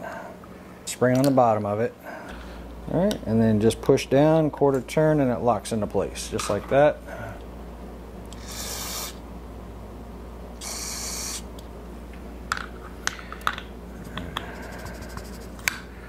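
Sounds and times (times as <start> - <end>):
aerosol spray hissing: 8.4 - 9.2, 10.6 - 11.4.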